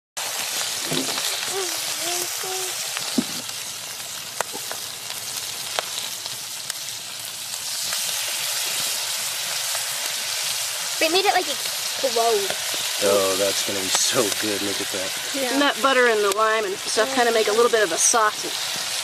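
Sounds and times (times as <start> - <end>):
fish sizzling in butter: 0.2 - 19.0
sharp fat pops: 4.4 - 4.8.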